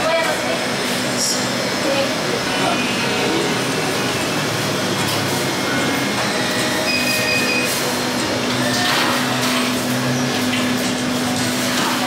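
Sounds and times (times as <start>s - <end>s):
machinery whirring: 0.0s - 12.0s
short high beep: 6.8s - 7.8s.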